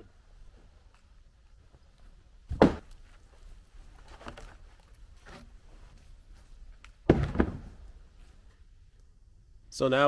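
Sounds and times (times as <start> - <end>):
heavy log thud: 2.5 - 3.0, 7.0 - 8.0.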